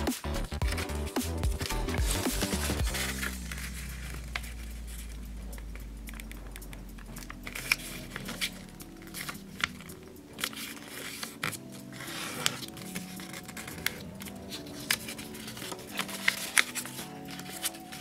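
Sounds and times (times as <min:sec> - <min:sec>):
paper crinkling and rustling: 0:01.6 - 0:18.0.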